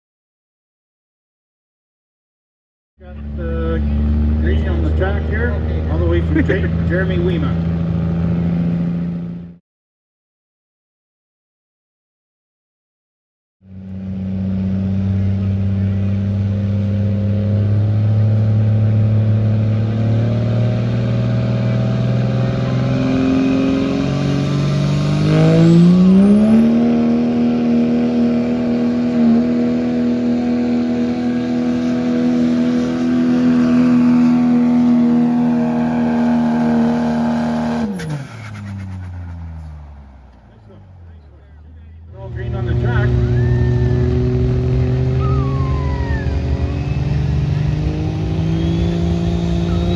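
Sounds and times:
diesel truck engine under load: 14.1s - 49.9s.

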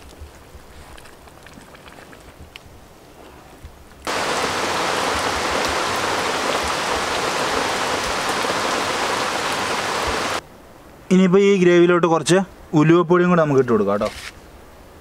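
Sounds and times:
rain on an umbrella and leaves: 4.0s - 10.4s.

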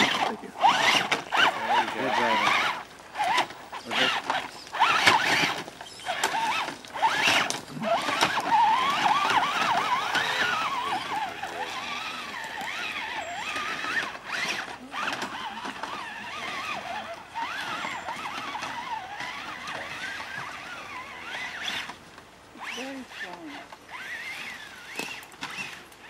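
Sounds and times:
electric motor and gears whining: 0.0s - 26.0s.

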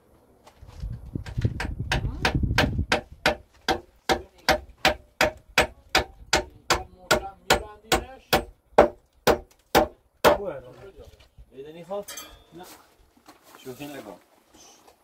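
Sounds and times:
hammer striking nail into wood: 1.6s - 10.4s.

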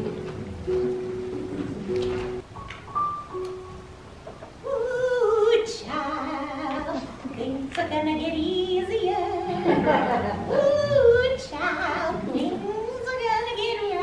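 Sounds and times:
woman singing with vibrato: 4.6s - 14.0s.

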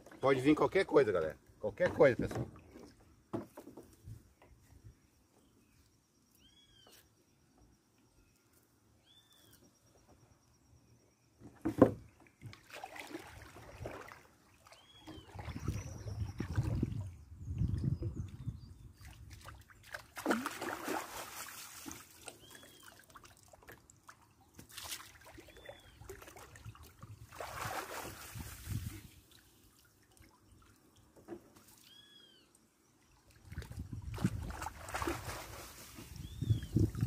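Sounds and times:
river water sloshing and splashing: 12.2s - 17.2s, 18.9s - 32.0s, 33.0s - 37.0s.

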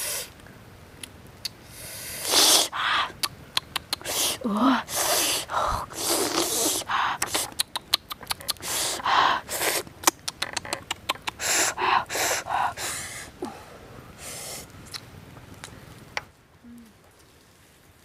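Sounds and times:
breathy puffs of breath: 1.7s - 3.2s, 4.0s - 7.5s, 8.5s - 9.8s, 11.3s - 14.7s
quick sharp clicks: 3.2s - 4.1s, 7.2s - 8.7s.

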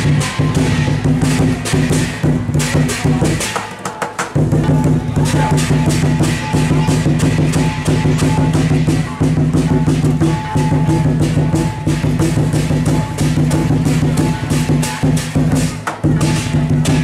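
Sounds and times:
gong: 0.0s - 3.6s, 4.6s - 17.0s
crash cymbals: 0.0s - 3.7s, 4.4s - 17.0s
big drum beating: 0.0s - 17.0s.

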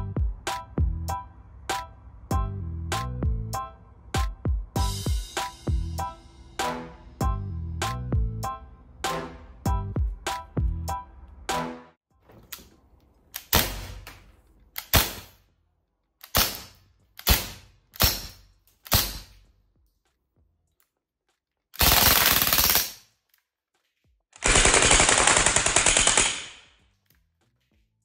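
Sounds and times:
airgun shots ringing: 13.5s - 14.2s, 16.3s - 19.4s
airgun rapid-fire bursts: 16.3s - 19.4s, 21.8s - 23.0s, 24.4s - 26.7s.

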